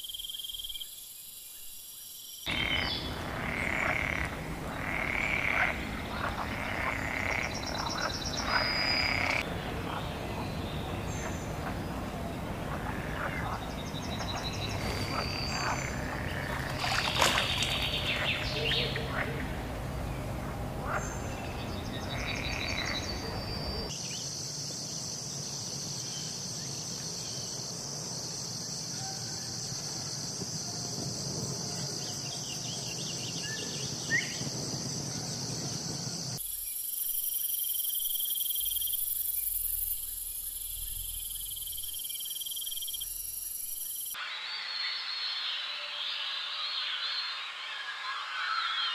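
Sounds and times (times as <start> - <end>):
high-pitched insect chorus: 0.0 - 10.4, 20.8 - 48.9.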